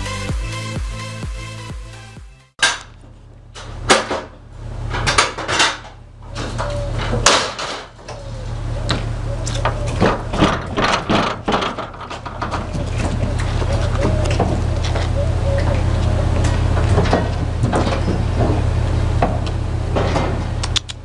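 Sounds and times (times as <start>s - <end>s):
low hum: 2.6s - 21.0s
knocks inside metal trailer: 9.8s - 13.3s.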